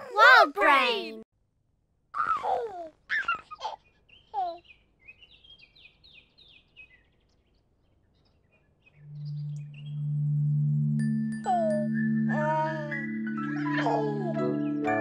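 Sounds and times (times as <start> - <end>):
birds chirping: 3.1 - 15.0.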